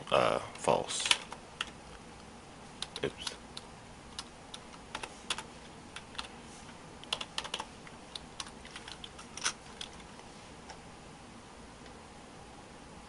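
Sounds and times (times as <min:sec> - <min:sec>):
keyboard keys clicking: 0:02.8 - 0:05.4, 0:06.0 - 0:06.3, 0:07.0 - 0:10.0.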